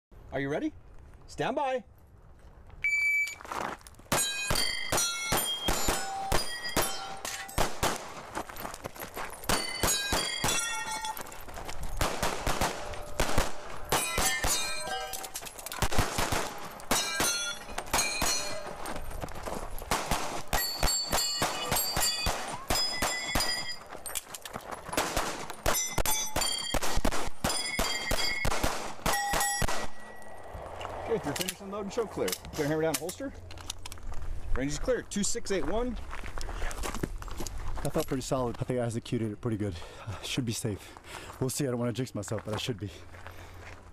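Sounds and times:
shot timer beep: 2.8 - 3.4
steel targets ringing: 4.1 - 7.6, 9.5 - 11.4, 12.7 - 15.5, 16.9 - 19.0, 20.5 - 24.0, 25.6 - 30.4
pistol shots: 4.1 - 8.2, 12.0 - 15.0, 15.8 - 18.6, 19.9 - 23.6, 24.9 - 30.2.

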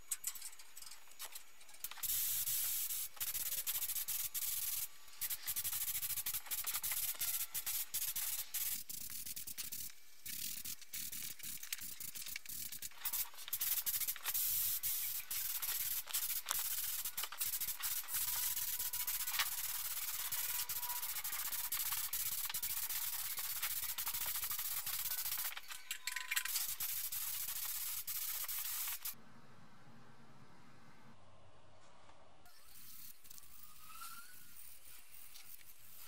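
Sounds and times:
spray gun hissing: 1.9 - 25.7, 26.4 - 29.2.

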